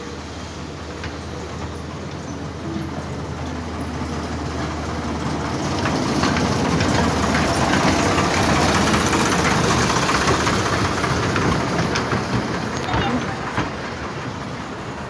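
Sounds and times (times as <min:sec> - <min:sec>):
miniature diesel locomotive running: 0:00.0 - 0:15.0
wheels clicking over rail joints: 0:00.0 - 0:15.0.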